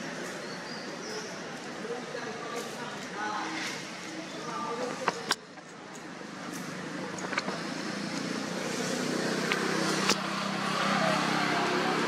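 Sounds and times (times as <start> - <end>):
motor vehicle engine hum: 6.3 - 12.0.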